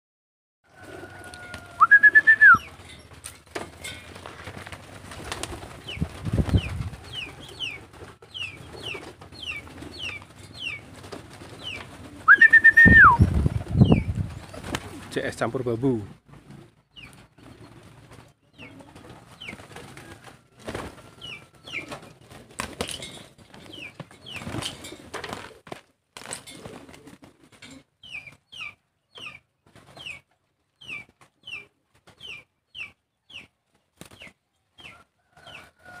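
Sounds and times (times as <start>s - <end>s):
pigeon wings flapping: 0.8s - 15.1s, 17.4s - 27.6s
high downward-sliding chirp: 1.8s - 2.8s.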